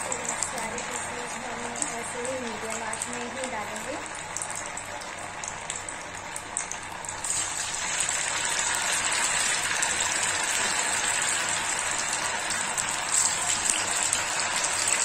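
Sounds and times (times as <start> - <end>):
food deep-frying in hot oil: 0.0 - 15.0.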